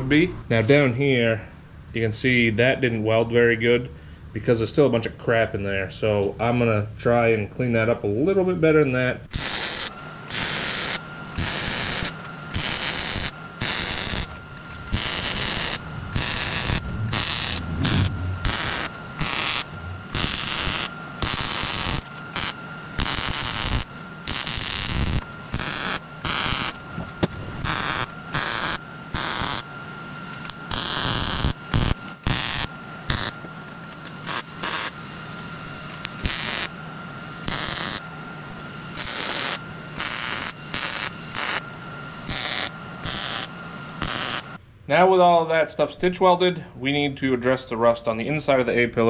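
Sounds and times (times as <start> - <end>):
welder crackling in short bursts: 9.3 - 26.8, 27.6 - 29.6, 30.4 - 33.4, 34.2 - 34.9, 36.2 - 36.7, 37.4 - 38.0, 39.0 - 41.6, 42.2 - 44.5.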